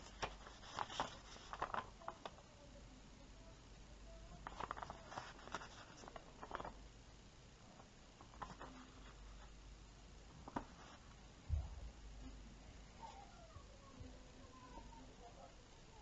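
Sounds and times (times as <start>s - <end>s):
paper pages rustling: 0.0s - 2.4s, 4.4s - 6.8s, 7.8s - 9.5s, 10.4s - 11.2s.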